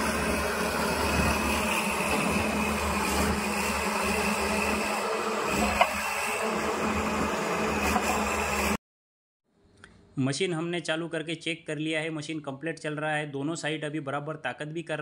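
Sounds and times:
excavator diesel engine running: 0.0 - 8.8.

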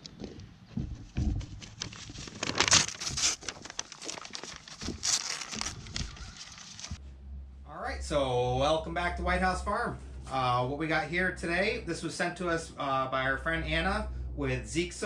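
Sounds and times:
paper crinkling and tearing: 1.4 - 7.0.

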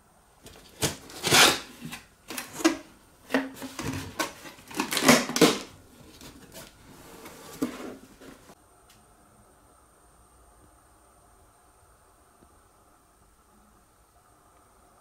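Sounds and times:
packed parts being handled: 0.4 - 6.8.

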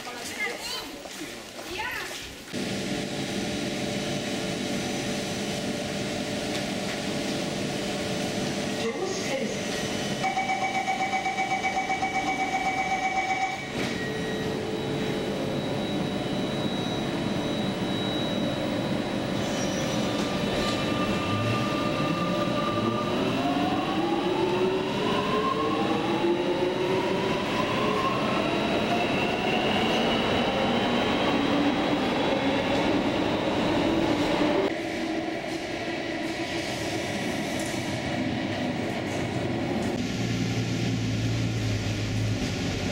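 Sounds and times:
train traction motor whine: 9.7 - 29.9.

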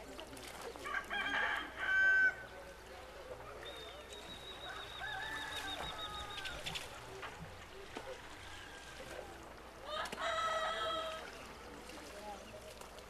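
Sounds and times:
rooster crowing: 0.9 - 2.4, 5.0 - 6.5, 9.8 - 11.2.

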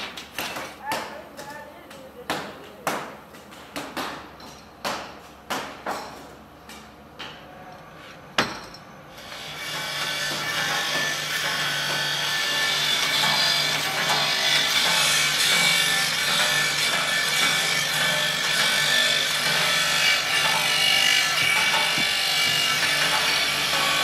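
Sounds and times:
machine grinding: 9.2 - 24.0.

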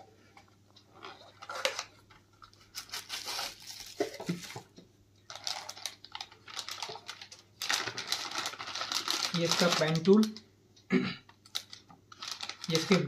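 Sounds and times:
plastic bag rustling: 0.9 - 10.4, 11.5 - 13.0.

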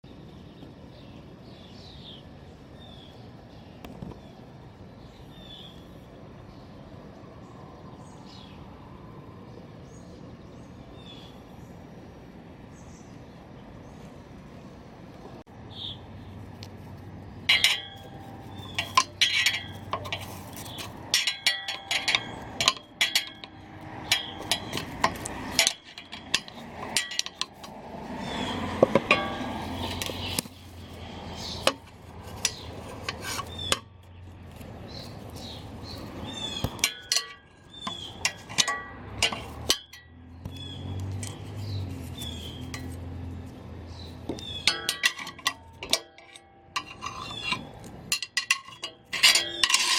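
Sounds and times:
birds chirping faintly: 0.0 - 49.8
tools clinking on steel: 17.4 - 34.0, 35.4 - 41.5, 42.2 - 43.1, 44.0 - 49.9
metal scraping: 17.4 - 49.9.

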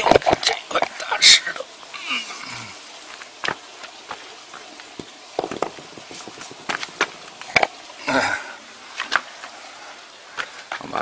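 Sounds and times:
stones knocking and rustles: 0.0 - 1.0, 3.0 - 7.8, 8.9 - 9.6
person grunting: 2.0 - 2.8, 8.0 - 8.6.

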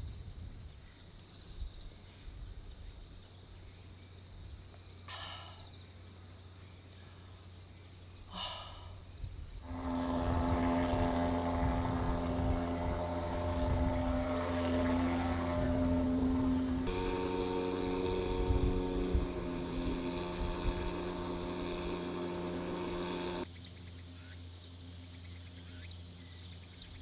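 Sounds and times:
low rumble: 9.6 - 23.4
motor droning: 9.6 - 23.5.

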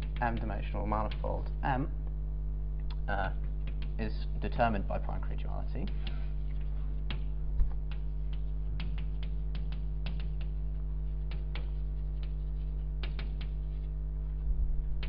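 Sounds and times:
steady electrical hum: 0.0 - 15.0
chalk tapping and scratching on blackboard: 5.8 - 14.0.

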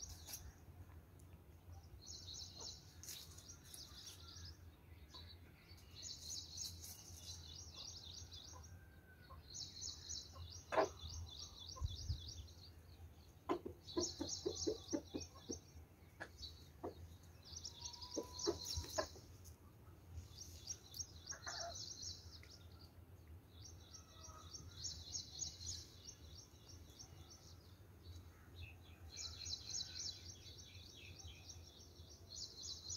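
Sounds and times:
chickens clucking: 10.3 - 11.2, 13.4 - 19.6, 21.3 - 21.8.

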